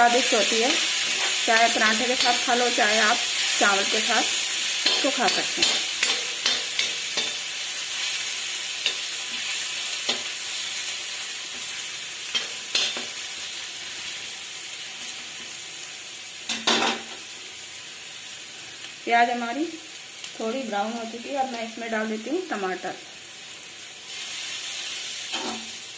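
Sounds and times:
onion sizzling in hot oil: 0.0 - 25.9
metal spoon scraping pan: 0.9 - 2.5, 4.8 - 7.5, 25.3 - 25.7.

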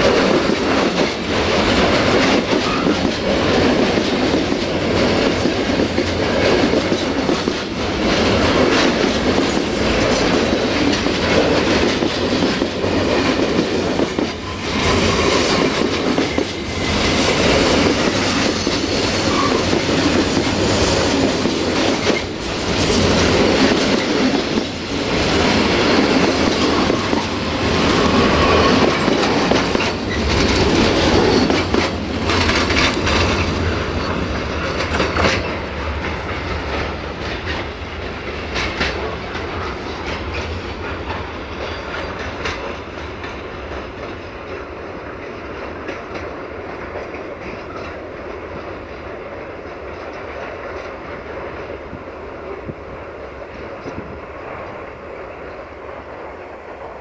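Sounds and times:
wheels clattering over rail joints: 0.0 - 49.0
freight train wagons rolling past: 0.0 - 57.0
wheel squeal: 14.4 - 20.5.

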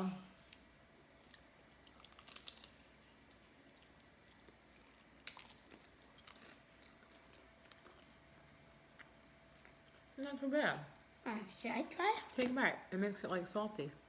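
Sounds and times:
crunchy chewing: 0.4 - 10.2.

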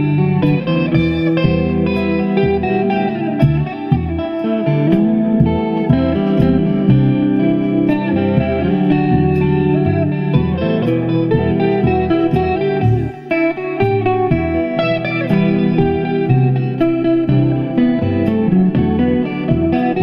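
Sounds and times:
bass and drum backing: 0.0 - 20.0
electric guitar solo: 0.0 - 20.0.

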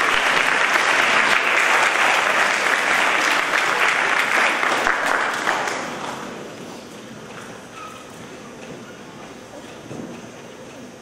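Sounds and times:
audience clapping: 0.0 - 6.4.

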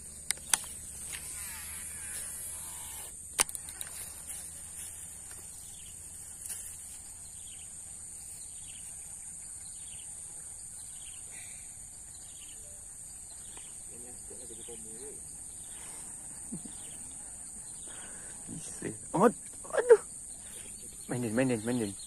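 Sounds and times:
high-pitched insect drone: 0.0 - 22.0
sharp click: 0.2 - 1.3, 3.0 - 4.0.

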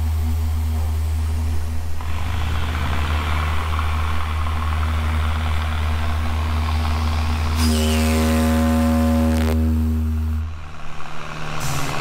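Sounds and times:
small engine running: 0.0 - 12.0
deep ship whistle: 7.5 - 10.5
hiss: 11.2 - 12.0.

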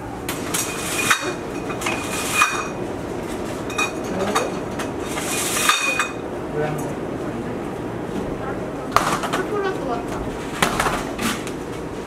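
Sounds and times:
glass bottles clinking: 0.5 - 2.8, 3.6 - 6.2.

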